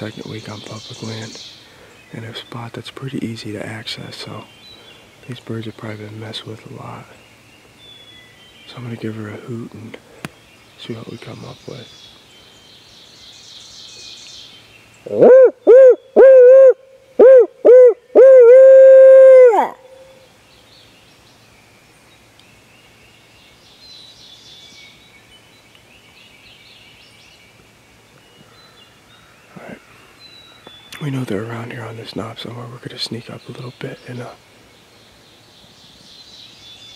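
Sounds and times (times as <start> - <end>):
owl call hoots: 15.0 - 20.2.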